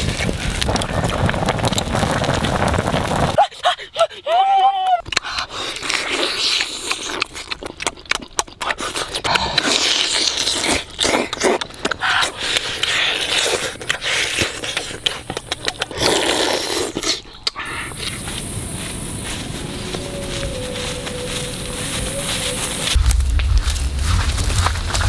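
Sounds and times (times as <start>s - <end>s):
man chewing with wet mouth sounds: 5.0s - 18.5s.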